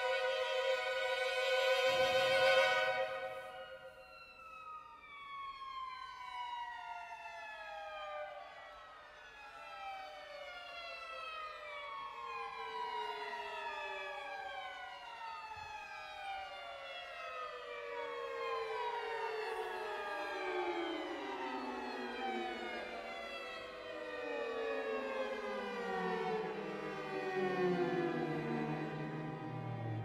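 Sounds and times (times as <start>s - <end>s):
string orchestra glissandi: 0.0s - 4.0s.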